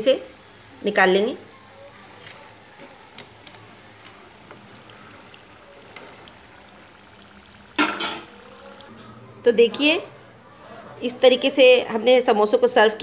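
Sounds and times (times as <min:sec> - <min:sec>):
deep-frying sizzle: 0:00.0 - 0:08.9
oil popping: 0:00.3 - 0:08.9.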